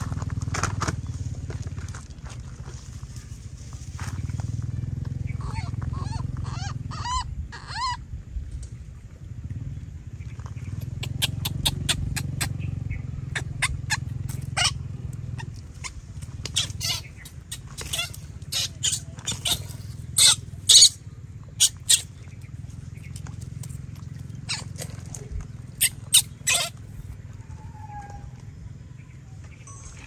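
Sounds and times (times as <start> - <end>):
low steady rumble: 0.0 - 30.0
monkeys eating watermelon: 4.2 - 8.0, 10.5 - 28.6.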